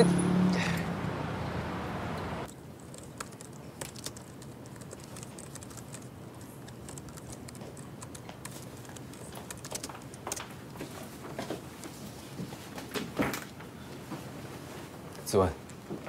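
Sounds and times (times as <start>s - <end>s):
laptop keyboard typing: 2.5s - 10.6s.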